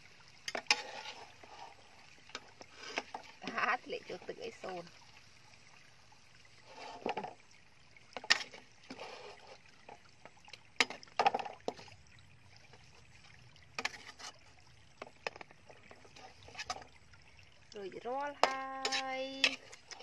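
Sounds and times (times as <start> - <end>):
metal spatula scraping a wok: 0.5 - 2.0, 13.8 - 14.4, 18.4 - 20.0.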